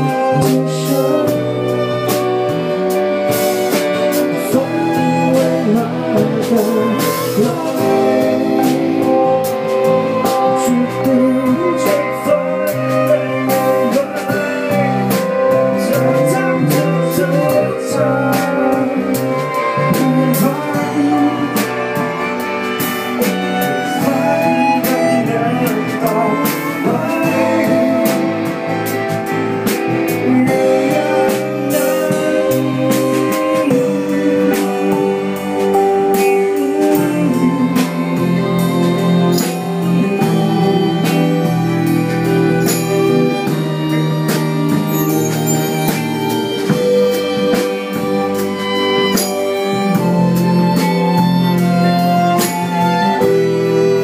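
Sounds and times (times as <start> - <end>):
man singing: 0.0 - 3.0, 3.9 - 22.4, 23.2 - 44.0
bass guitar: 0.0 - 54.0
drums and cymbals beat: 0.0 - 54.0
electric and acoustic guitar: 0.0 - 54.0
violins and cello bowing: 0.0 - 54.0.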